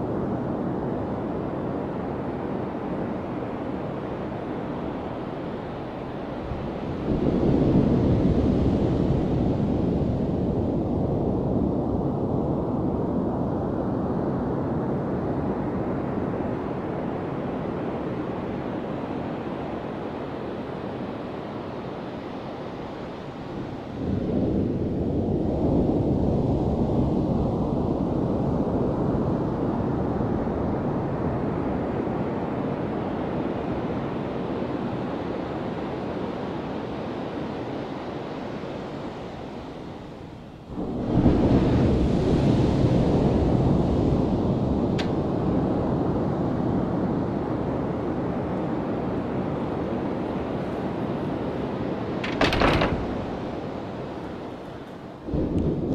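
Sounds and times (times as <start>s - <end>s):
ocean waves breaking on sand: 32.2s - 52.2s.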